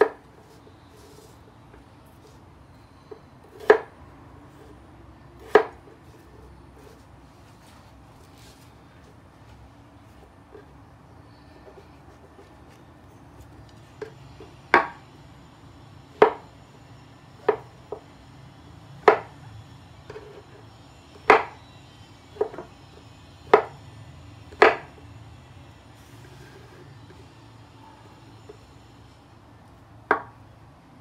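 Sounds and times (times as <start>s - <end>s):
knife chopping on wooden board: 0.0s - 1.2s, 3.5s - 3.9s, 5.4s - 7.0s, 14.7s - 15.0s, 16.2s - 16.5s, 17.4s - 18.0s, 19.0s - 19.3s, 21.2s - 21.6s, 22.4s - 22.7s, 23.5s - 23.8s, 24.5s - 25.0s.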